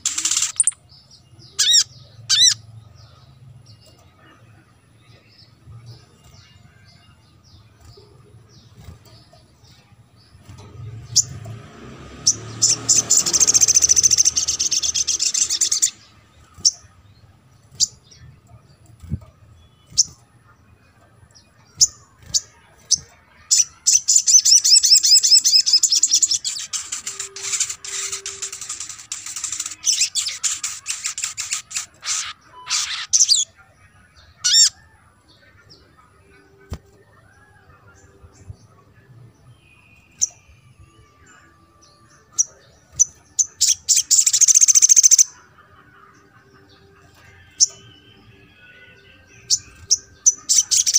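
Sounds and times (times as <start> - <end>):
bird high chirps: 0.0 - 11.6, 12.2 - 36.0, 39.4 - 50.9
bird fast high trill: 24.1 - 33.4.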